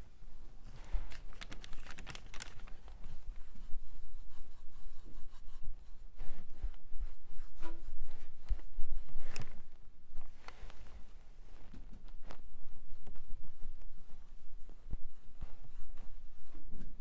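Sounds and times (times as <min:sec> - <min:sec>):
paintbrush scratchy strokes: 0:02.3 - 0:09.4.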